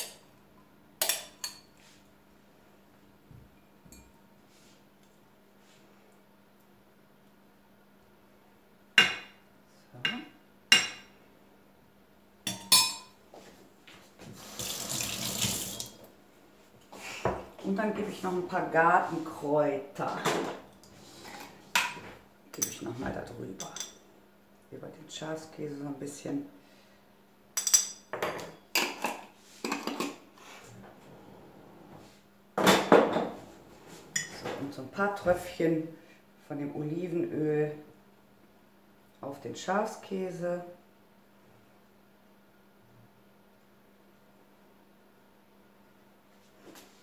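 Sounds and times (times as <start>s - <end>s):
cutlery clinking on dishware: 12.5s - 13.2s
kitchen tap running: 14.3s - 16.1s.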